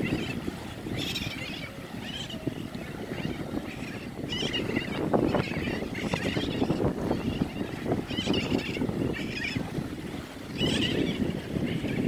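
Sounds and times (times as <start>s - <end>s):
seabirds calling harshly: 0.0s - 12.0s
wind on microphone: 0.0s - 12.0s.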